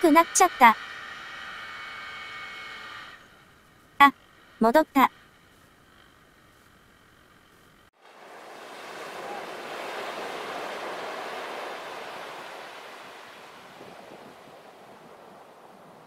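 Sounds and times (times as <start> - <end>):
wave breaking on beach: 8.0 - 16.0.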